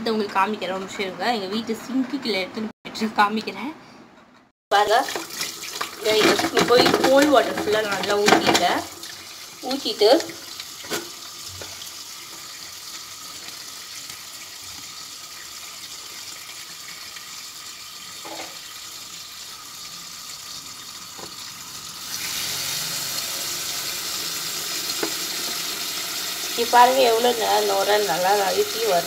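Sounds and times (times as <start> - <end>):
tap water pouring into tub: 5.0 - 6.6, 7.3 - 26.8.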